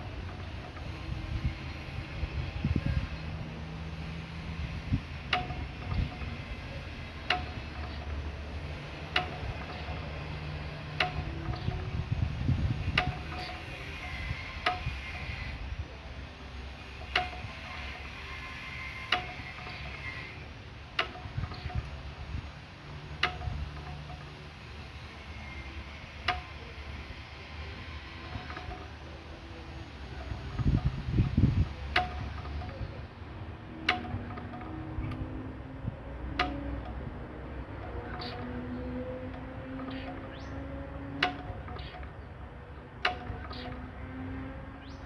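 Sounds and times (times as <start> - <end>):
stationary engine rumbling: 0.0 - 45.0
sharp metallic tick: 5.2 - 6.6, 7.2 - 12.0, 12.8 - 15.5, 17.0 - 22.0, 23.1 - 24.4, 25.3 - 26.7, 30.2 - 33.0, 33.7 - 42.4, 43.0 - 44.0.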